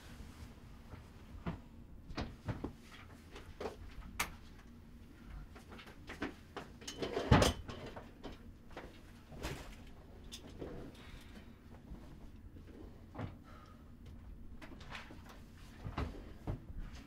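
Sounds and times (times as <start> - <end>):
objects clattering on a desk: 5.6 - 10.6
soft knocks and rustles: 14.6 - 17.0.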